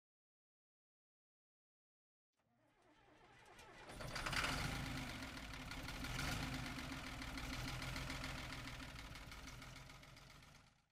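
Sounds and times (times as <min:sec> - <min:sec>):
engine running with fast pulse: 0:02.8 - 0:10.9.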